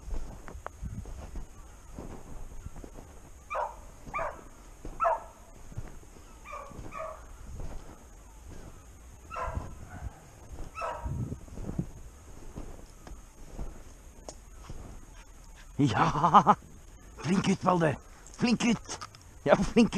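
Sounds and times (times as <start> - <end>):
dog baying: 3.5 - 5.4, 6.4 - 7.2, 9.3 - 11.1.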